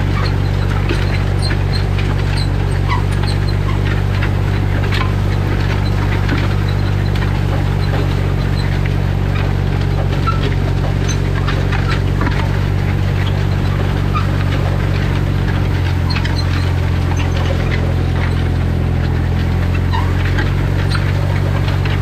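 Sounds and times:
tractor diesel engine running: 0.0 - 22.0
light clicks and squeaks: 15.5 - 22.0.

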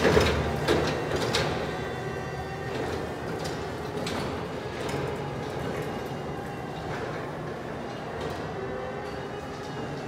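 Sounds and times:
machine knocks and rattles: 0.0 - 1.9
forklift drive hum: 0.0 - 10.0.

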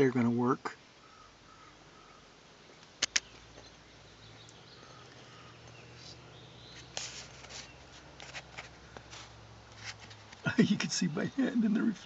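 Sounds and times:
soft rustles and clicks: 4.4 - 10.5.

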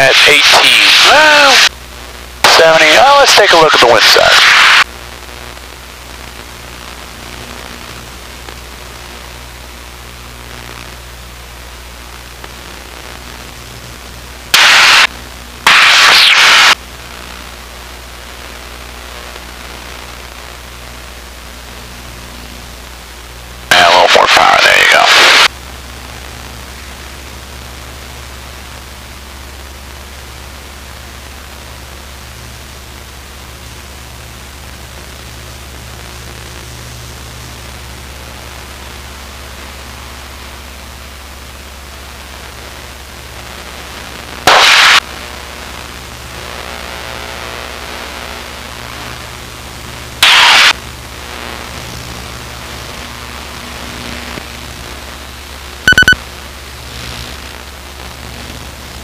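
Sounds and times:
radio static bursts: 0.0 - 7.8, 14.4 - 20.5, 23.6 - 25.5, 41.9 - 54.9, 55.8 - 58.7.

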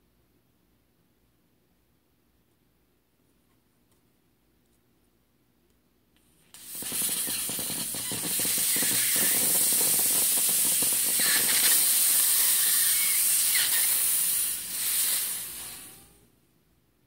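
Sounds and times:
high-pressure air hissing: 6.6 - 16.2.

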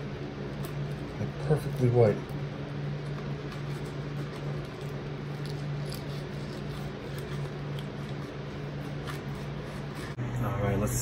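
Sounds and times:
steady low hum: 0.0 - 11.0
knife scraping fish fillet: 3.4 - 10.2.

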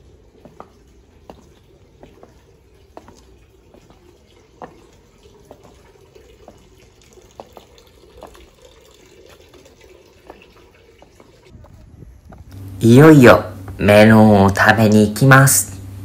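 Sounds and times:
footsteps on brick: 0.0 - 8.6, 10.2 - 12.6
steady low hum: 11.5 - 16.0.

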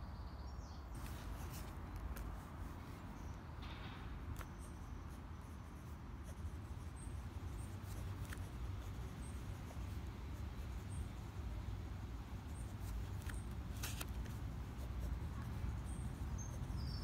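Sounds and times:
pen scratching on paper: 4.4 - 16.8.

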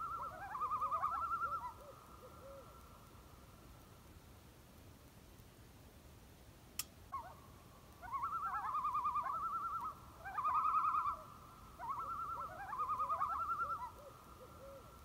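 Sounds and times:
loon tremolo calls: 0.0 - 2.8, 8.0 - 15.0.

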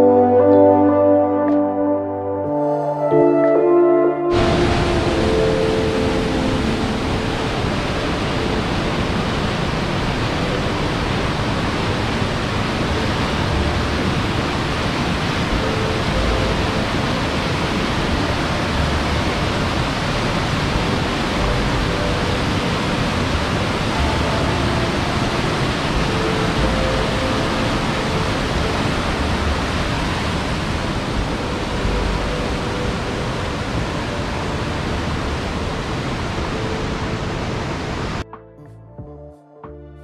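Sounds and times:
river rapids roaring: 4.3 - 38.2.

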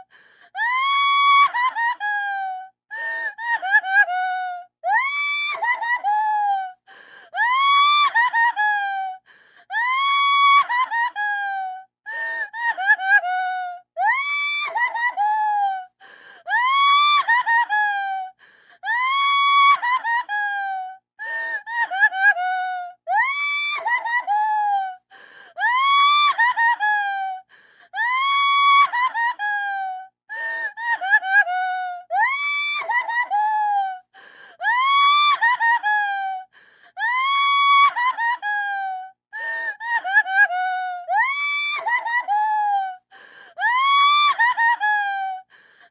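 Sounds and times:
gasping breaths: 0.0 - 0.6, 6.8 - 7.4, 9.2 - 9.7, 16.0 - 16.5, 18.4 - 18.9, 25.1 - 25.6, 27.4 - 28.0, 34.1 - 34.6, 36.5 - 37.0, 43.0 - 43.6, 45.4 - 45.9
woman crying and sobbing: 0.0 - 45.9.

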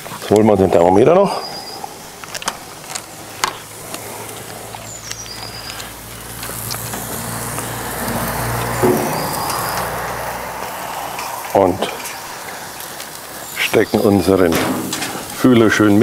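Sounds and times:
fat crackling and popping: 0.0 - 16.0
gas grill sizzling: 0.0 - 16.0.

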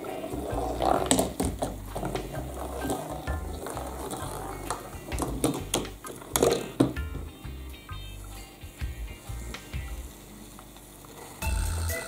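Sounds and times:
marbles rolling and clicking: 0.3 - 7.0.

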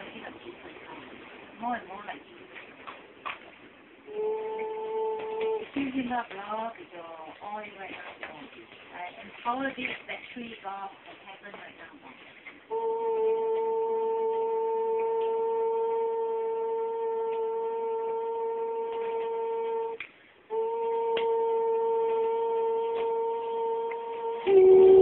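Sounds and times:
shofar blasts: 4.0 - 5.9, 12.7 - 25.0.

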